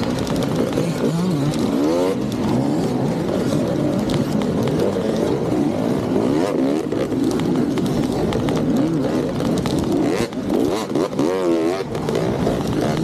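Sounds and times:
dirt bike engines revving: 0:00.0 - 0:13.0.

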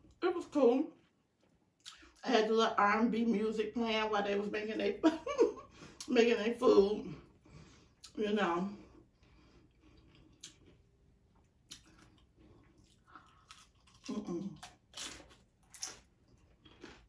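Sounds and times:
crunchy taco being bitten and chewed: 0:09.1 - 0:17.0.

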